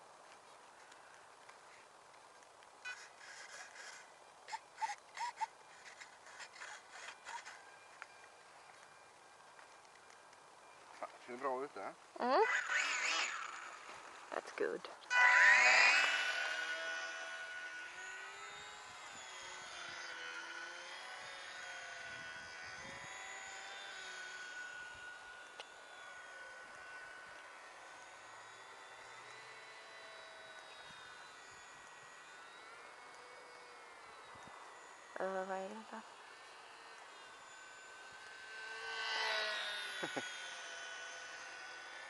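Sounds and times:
model plane motor buzzing: 0.0 - 42.0
rustling and scraping of foam: 2.8 - 7.7.

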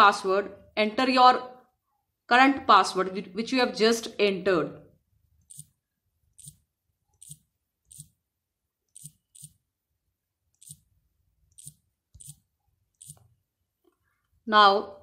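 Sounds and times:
on-screen keyboard clicks: 11.5 - 12.4.

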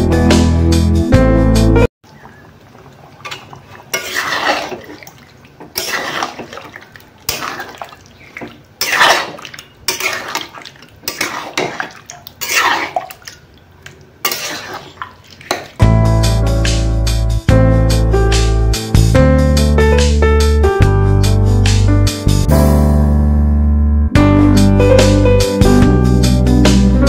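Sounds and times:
metal spatula scraping a pan: 3.3 - 5.1, 5.7 - 6.7, 7.3 - 13.1, 14.2 - 15.7.

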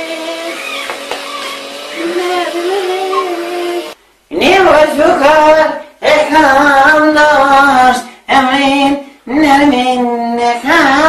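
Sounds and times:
woman singing held notes: 2.0 - 4.0.

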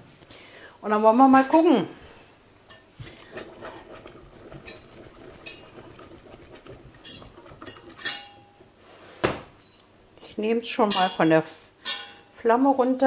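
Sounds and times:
utensil scraping a pot: 2.7 - 9.2
metal clinks against pot: 7.0 - 8.6.

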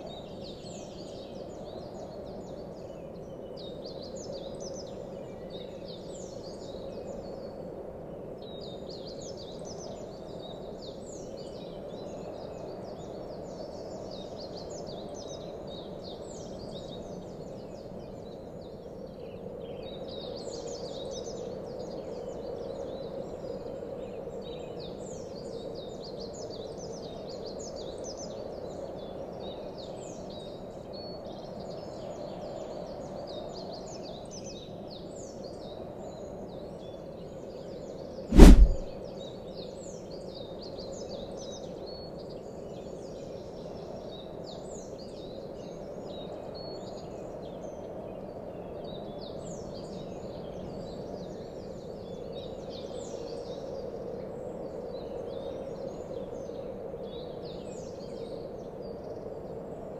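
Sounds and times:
loud deep boom: 38.3 - 38.9
steady outdoor noise: 38.3 - 38.9.

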